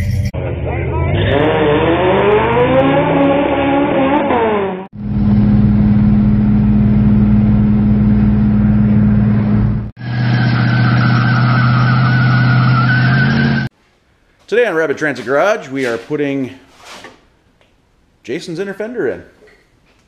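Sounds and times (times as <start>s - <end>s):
car engine cruising hum: 0.0s - 13.7s
drag car engine accelerating: 0.0s - 13.7s
tire squeal: 10.0s - 13.7s.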